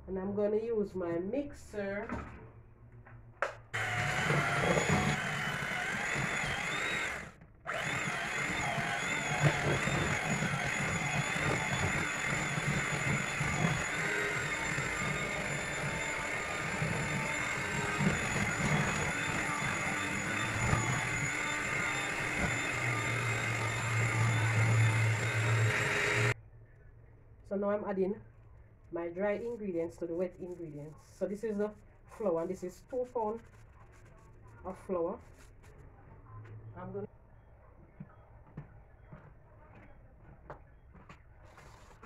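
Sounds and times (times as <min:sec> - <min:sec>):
beaters in batter in steel bowl: 0:03.8 - 0:26.4
electric hand mixer whining: 0:03.8 - 0:26.4.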